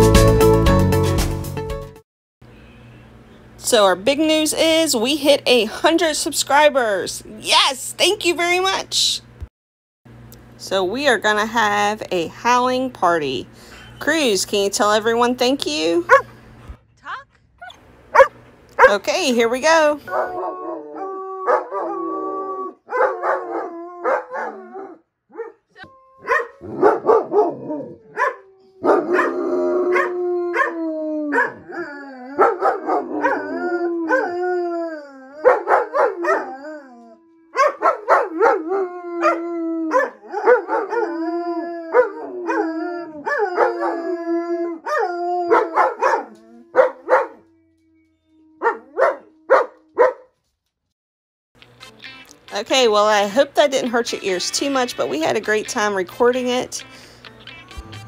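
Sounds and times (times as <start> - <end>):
dogs yipping and barking: 16.1 - 16.6, 17.6 - 19.0, 20.1 - 22.0, 22.9 - 34.4, 35.4 - 36.7, 37.6 - 41.2, 41.9 - 44.1, 44.8 - 47.5, 48.4 - 50.2
dogs howling: 20.1 - 50.2.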